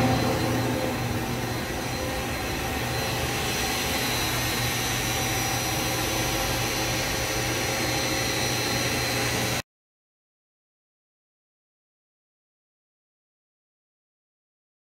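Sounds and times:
machine humming and whining: 0.0s - 9.6s.

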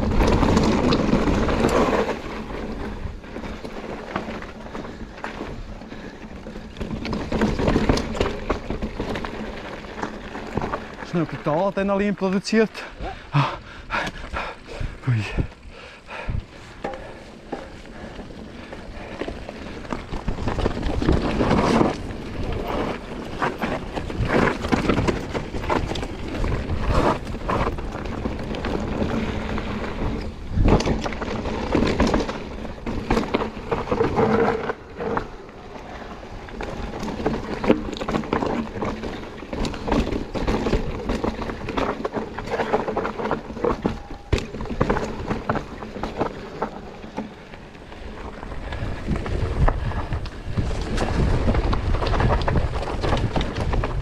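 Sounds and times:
bike rattling and knocking: 0.0s - 54.0s
tyres rolling over dirt and rock: 0.0s - 54.0s
wind noise on microphone: 19.0s - 35.2s, 48.2s - 54.0s.

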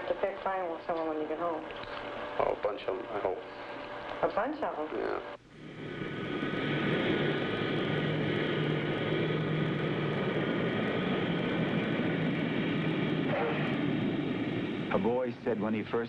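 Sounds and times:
jet engines whining: 0.0s - 16.0s
dense rumble: 5.6s - 16.0s.

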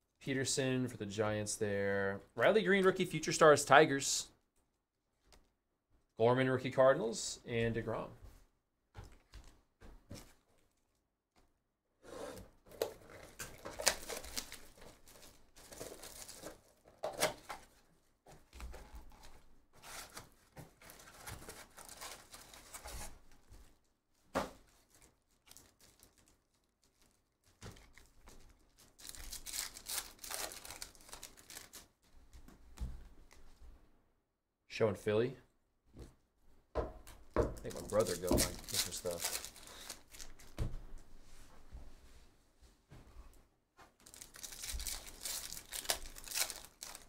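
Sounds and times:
foil wrappers crinkling and tearing: 12.9s - 16.9s, 19.0s - 23.2s, 24.7s - 31.9s, 37.7s - 40.6s, 44.0s - 47.0s.

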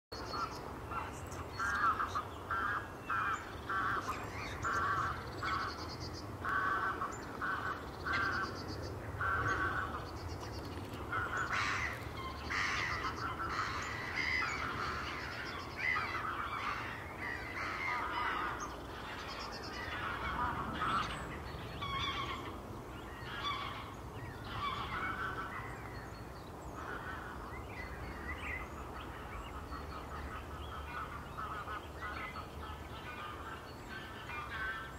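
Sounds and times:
gulls calling: 0.2s - 34.9s
rooks calling: 0.2s - 34.9s
tits calling: 0.2s - 34.9s
geese honking: 9.2s - 10.0s, 11.1s - 22.6s, 23.3s - 25.7s, 28.7s - 34.9s.

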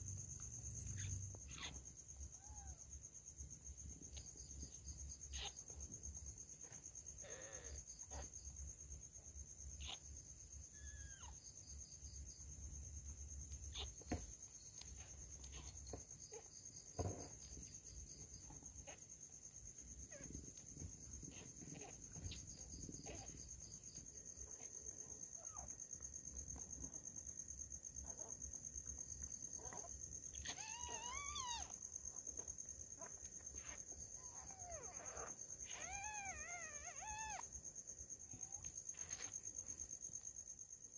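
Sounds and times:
crickets chirring: 0.0s - 40.9s
kittens mewing faintly: 0.8s - 2.8s, 6.6s - 8.4s.

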